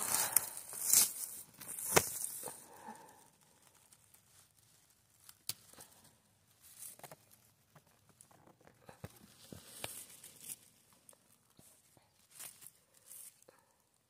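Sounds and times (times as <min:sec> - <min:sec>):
mushroom stems snapping: 0:00.0 - 0:02.6, 0:05.2 - 0:06.1
rustling of dry grass and moss: 0:00.0 - 0:13.8.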